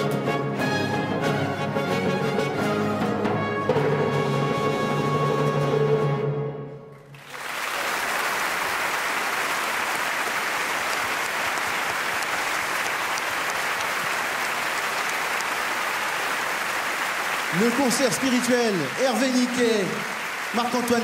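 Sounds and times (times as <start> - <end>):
audience applause: 7.1 - 21.0.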